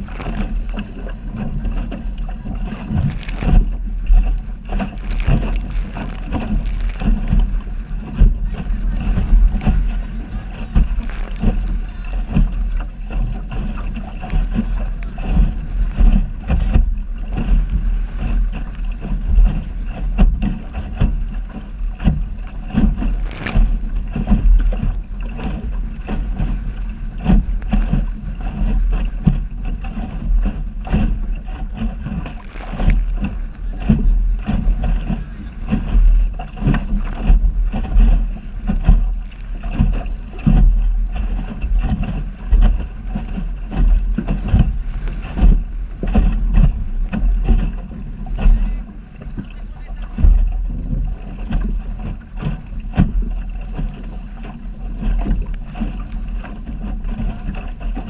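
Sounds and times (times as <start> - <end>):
water splashing against hull: 0.0 - 58.0
wind buffeting microphone: 0.0 - 58.0.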